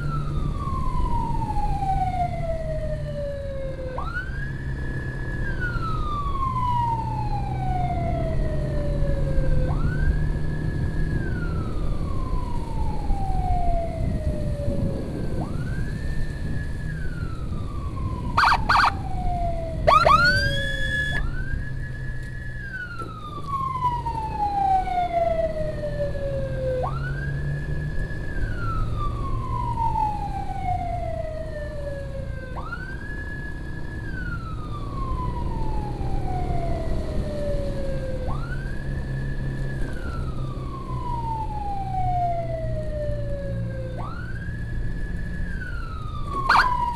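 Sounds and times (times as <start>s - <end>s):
emergency siren wailing: 0.0s - 46.9s
wind noise: 12.8s - 21.3s
siren blips and whoop: 18.4s - 19.0s, 19.8s - 21.4s, 46.4s - 46.9s.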